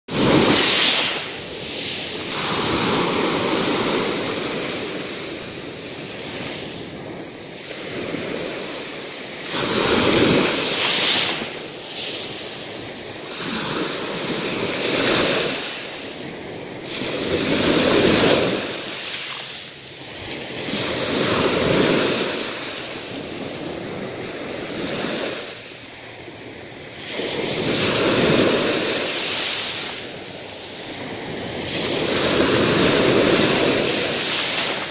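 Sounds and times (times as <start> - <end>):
waves breaking on pebble beach: 0.1 - 25.7, 27.0 - 34.9.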